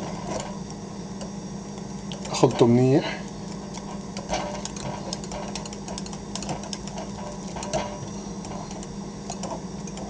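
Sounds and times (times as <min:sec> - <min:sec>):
whisk clicking and scraping glass: 0:03.6 - 0:10.0.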